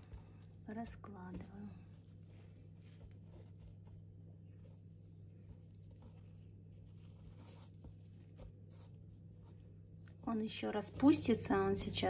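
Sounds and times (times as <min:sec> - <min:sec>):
moss rustling and crackling: 0:00.0 - 0:12.0
steady low hum: 0:00.0 - 0:12.0.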